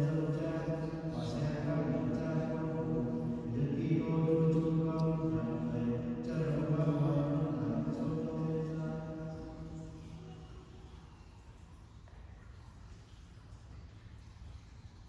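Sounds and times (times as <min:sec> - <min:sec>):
person chanting a prayer: 0:00.0 - 0:10.1.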